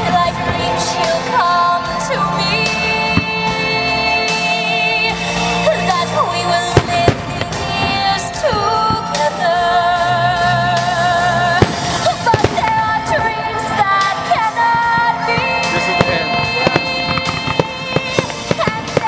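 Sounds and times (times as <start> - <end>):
fireworks bursting and crackling: 0.0 - 19.0
song with singer: 0.0 - 19.0
loud firework bang: 6.8 - 9.0, 11.6 - 13.2.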